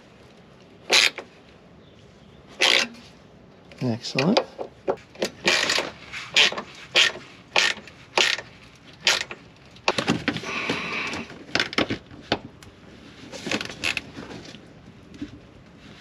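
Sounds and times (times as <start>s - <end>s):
scraping rustle: 12.2s - 16.0s.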